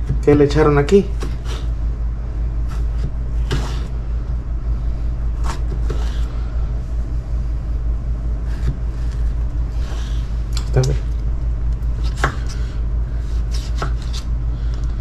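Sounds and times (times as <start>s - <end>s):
steady low hum: 0.0s - 15.0s
knife cutting tomato on board: 2.7s - 3.9s, 8.4s - 10.2s, 12.0s - 12.6s, 13.2s - 14.3s.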